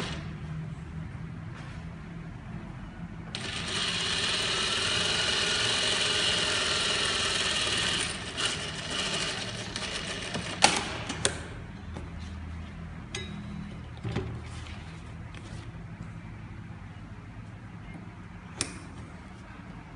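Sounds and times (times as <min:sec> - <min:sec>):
sewing machine stitching: 0:03.4 - 0:10.6.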